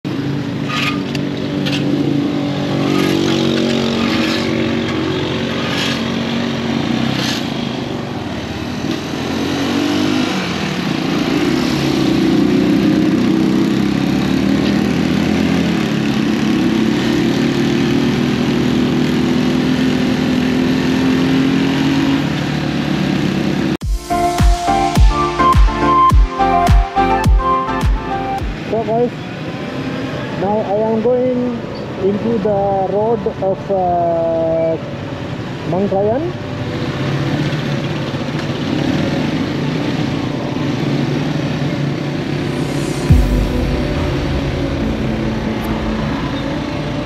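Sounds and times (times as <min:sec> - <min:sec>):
wind and road noise: 0:00.0 - 0:24.9, 0:28.0 - 0:47.0
motorcycle engine running: 0:00.1 - 0:24.0.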